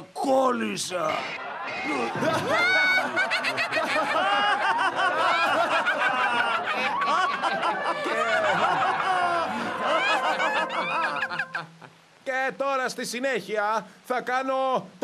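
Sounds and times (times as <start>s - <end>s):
cartoon voices laughing: 1.1s - 11.9s.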